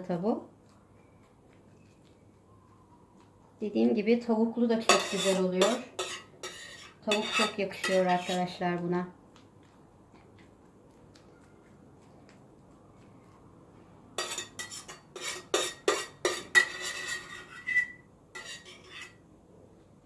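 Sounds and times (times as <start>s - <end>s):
kitchen dishes and utensils clinking: 4.8s - 8.5s, 14.2s - 19.2s.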